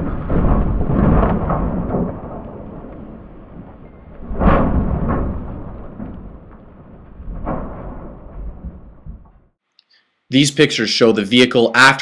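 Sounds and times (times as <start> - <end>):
vehicle crashing on ground: 0.0 - 9.4
low rumble: 0.0 - 9.6.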